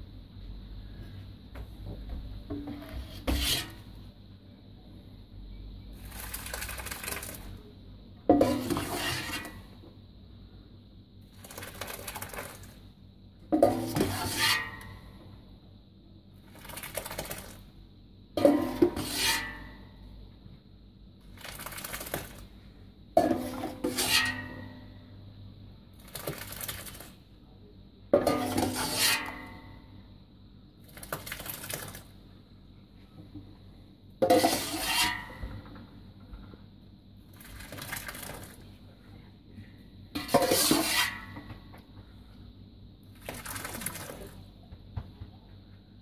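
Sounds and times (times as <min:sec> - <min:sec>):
whey splashing through cloth: 0:21.3 - 0:22.5.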